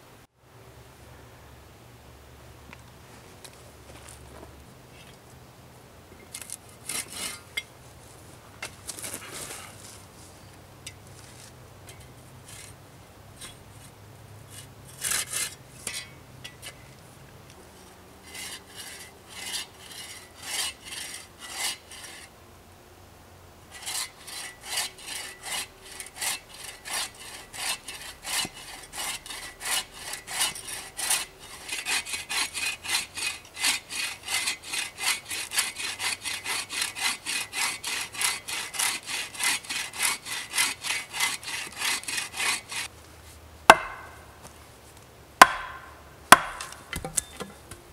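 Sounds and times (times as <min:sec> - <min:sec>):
hand saw cutting wood: 0:06.4 - 0:07.6, 0:13.4 - 0:16.8, 0:17.7 - 0:22.3, 0:23.7 - 0:42.9, 0:43.7 - 0:44.2, 0:45.4 - 0:47.1.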